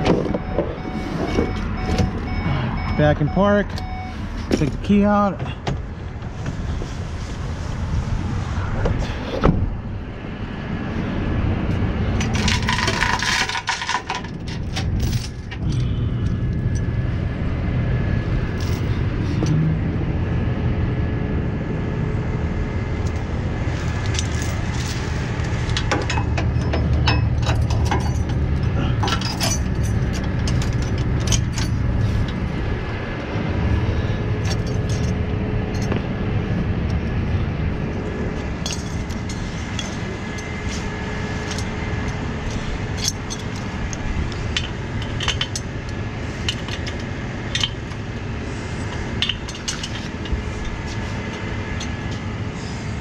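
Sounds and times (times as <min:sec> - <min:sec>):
metal chains clinking and rattling: 0:12.2 - 0:15.9, 0:18.5 - 0:19.0, 0:23.9 - 0:32.3, 0:34.4 - 0:36.0, 0:38.6 - 0:48.0, 0:48.8 - 0:51.0
truck engine idling: 0:14.4 - 0:53.0.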